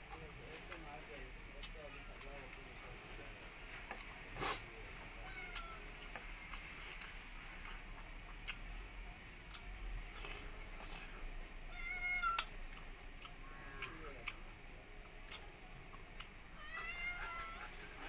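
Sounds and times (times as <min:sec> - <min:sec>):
person chewing: 0:05.5 - 0:08.7, 0:09.5 - 0:11.3, 0:12.4 - 0:16.6.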